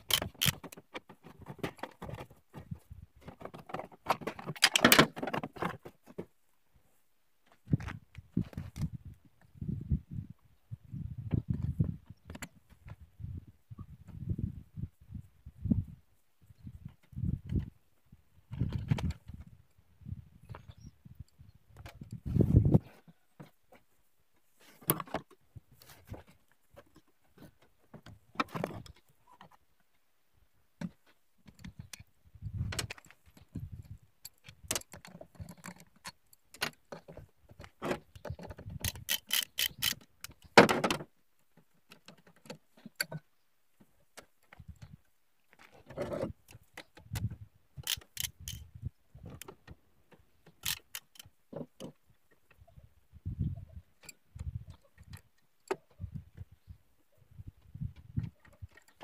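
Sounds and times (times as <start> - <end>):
socket wrench clicking: 38.8 - 40.4, 47.8 - 48.6, 50.6 - 51.3.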